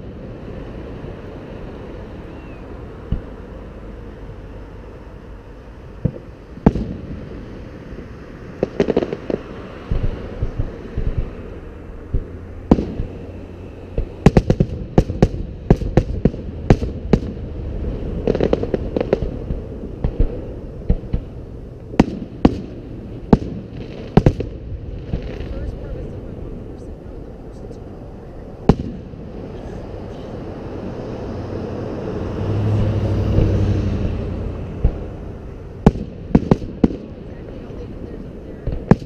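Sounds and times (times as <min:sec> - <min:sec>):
low background noise: 0:00.0 - 0:39.0
firework shells bursting: 0:12.1 - 0:13.2, 0:34.8 - 0:38.0.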